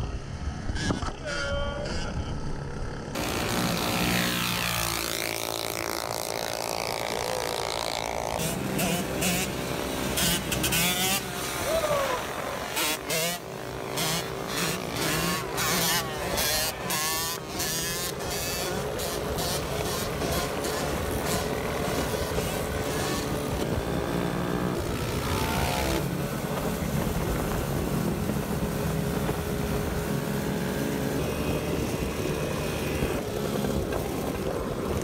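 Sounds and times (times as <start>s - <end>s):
mini bike engines running: 1.8s - 35.0s.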